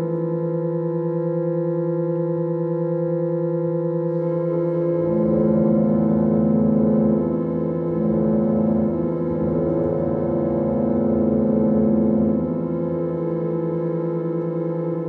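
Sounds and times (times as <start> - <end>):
pump organ drone chord: 4.1 - 15.0.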